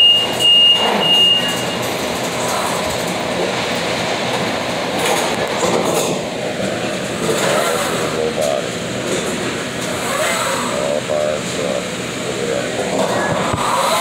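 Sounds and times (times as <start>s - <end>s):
high electronic beeps: 0.0s - 1.8s
steady rumbling: 1.8s - 14.0s.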